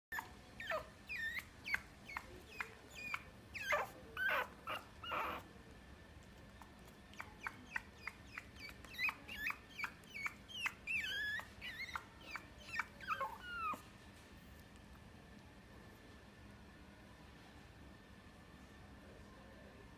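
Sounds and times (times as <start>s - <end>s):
puppy whimpering and yipping: 0.1s - 5.4s, 7.1s - 13.8s.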